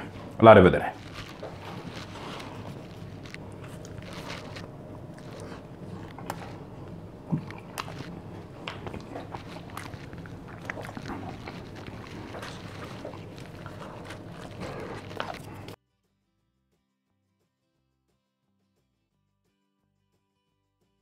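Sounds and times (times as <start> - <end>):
pizza being chewed: 0.0 - 15.8
steady low hum: 0.0 - 15.8
small crunching clicks: 0.9 - 15.8.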